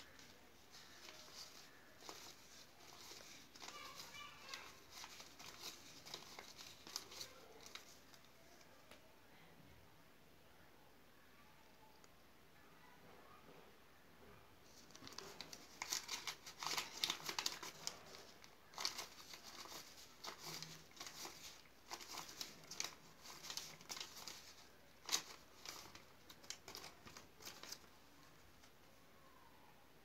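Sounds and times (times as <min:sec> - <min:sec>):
banknotes rustling as counted: 0:00.0 - 0:08.7, 0:14.7 - 0:28.8.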